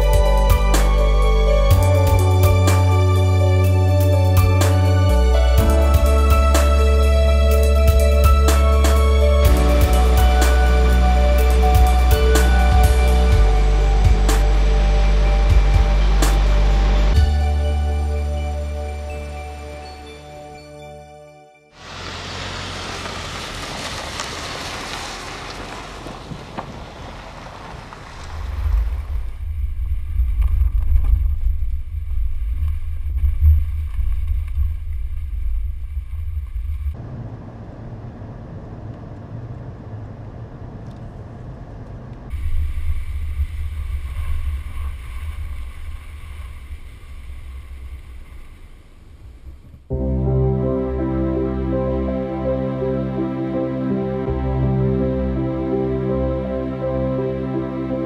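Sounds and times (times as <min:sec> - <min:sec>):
tyres on gravel hissing: 0:21.8 - 0:29.4
wind buffeting and road rumble: 0:21.8 - 0:49.9.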